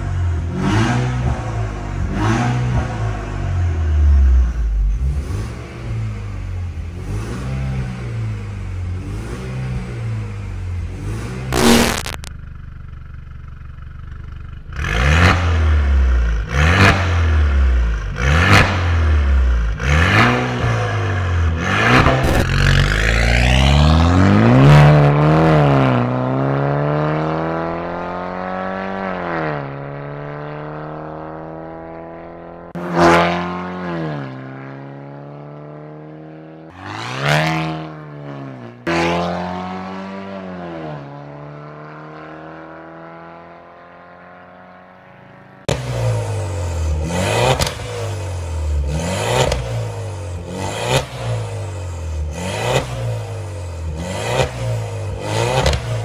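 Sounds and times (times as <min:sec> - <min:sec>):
car engine revving: 0:00.0 - 0:12.3, 0:14.7 - 0:56.0
exhaust crack: 0:11.5 - 0:16.0, 0:21.9 - 0:23.1, 0:45.6 - 0:51.4, 0:54.4 - 0:56.0.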